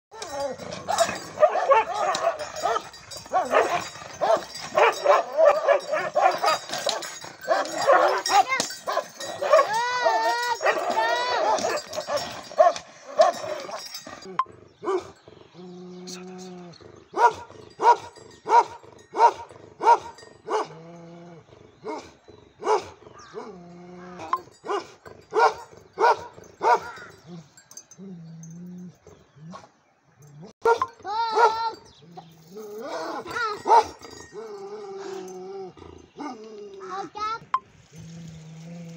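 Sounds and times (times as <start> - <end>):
dogs barking and yelping: 0.1 - 37.1.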